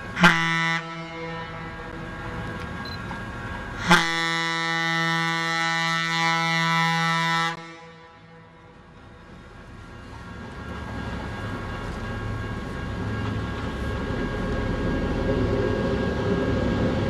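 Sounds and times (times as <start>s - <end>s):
train horn blast: 0.1s - 2.4s, 3.8s - 8.9s.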